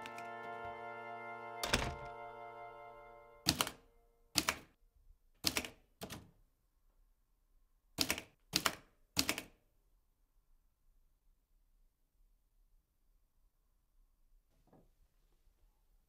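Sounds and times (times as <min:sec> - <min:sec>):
typewriter keys striking: 0:03.5 - 0:03.8, 0:04.4 - 0:04.7.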